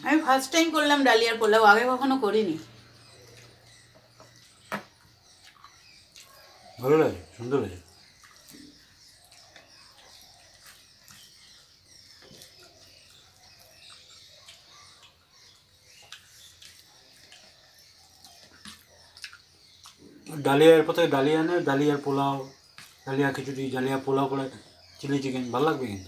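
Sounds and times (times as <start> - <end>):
chewing: 2.8 - 6.8, 7.9 - 20.4
fingers mixing food on plastic plates: 7.4 - 20.4, 22.0 - 23.8.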